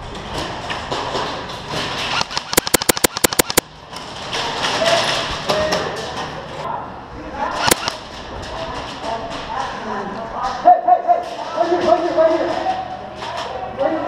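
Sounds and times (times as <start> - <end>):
airsoft rifle shots: 2.1 - 3.6, 7.6 - 8.0.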